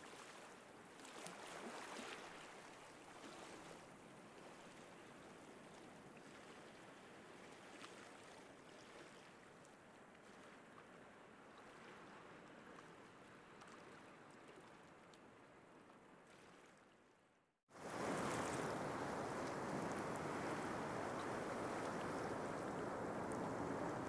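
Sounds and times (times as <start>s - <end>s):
rush of water: 0.0s - 9.7s, 17.7s - 24.0s
loud rush of water: 17.8s - 24.0s.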